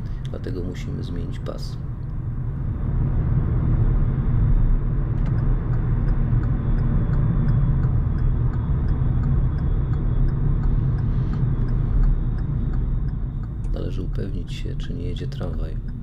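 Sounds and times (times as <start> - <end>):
car engine and tyre rumble: 0.0 - 16.0
turn signal clicking: 5.2 - 16.0.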